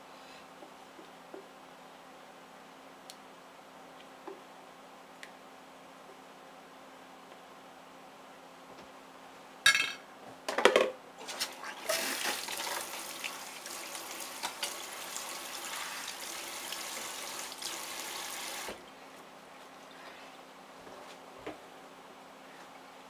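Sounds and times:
sink tap running: 11.8 - 18.8.

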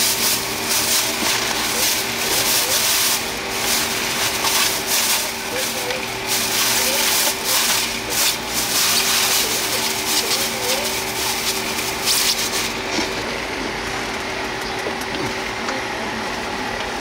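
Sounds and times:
hissing scraping noise: 0.0 - 12.9
mechanical hum: 0.0 - 17.0.

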